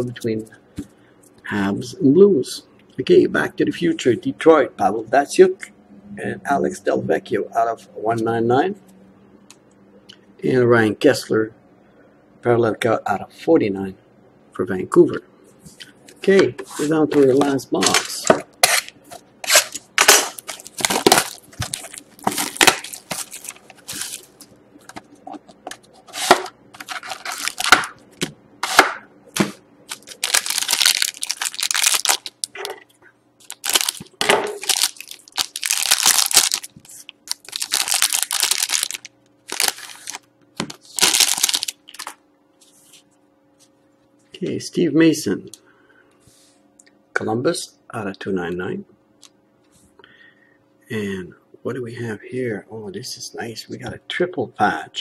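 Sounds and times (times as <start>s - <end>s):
foil wrapper crinkling: 17.4s - 25.0s, 26.2s - 28.0s, 29.9s - 32.6s, 33.4s - 42.2s.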